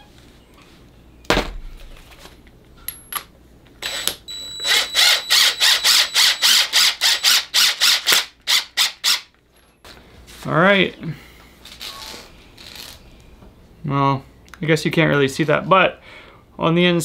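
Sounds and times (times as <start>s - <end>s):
impact driver pulsing: 3.8s - 9.2s.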